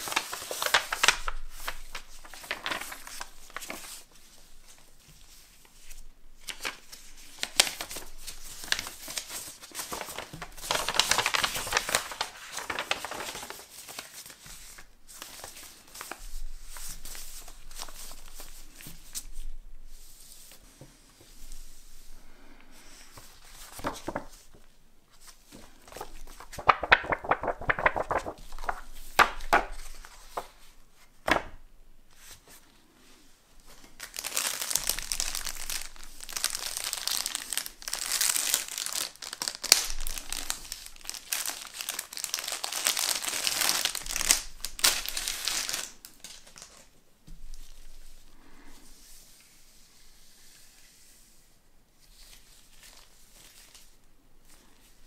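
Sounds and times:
plastic bag crinkling: 7.4s - 14.4s, 25.9s - 30.1s, 34.0s - 46.8s.

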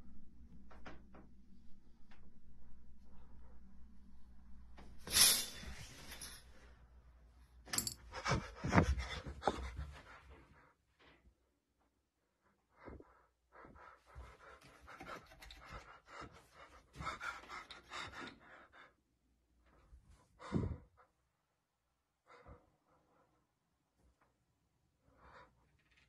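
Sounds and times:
faint panting breaths: 7.9s - 10.8s, 12.4s - 21.2s, 22.2s - 23.6s.

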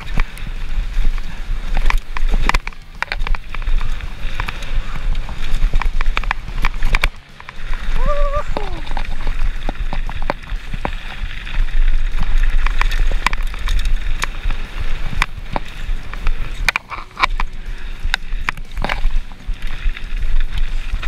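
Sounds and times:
bike rattling: 0.0s - 21.0s
wind buffeting microphone: 0.0s - 21.0s
sharp clicks and knocks: 5.6s - 7.8s, 8.6s - 19.3s.

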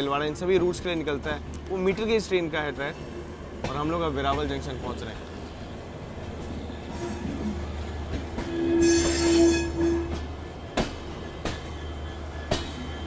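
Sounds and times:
train rumbling: 0.0s - 13.0s
train wheel squeal: 6.6s - 13.0s.

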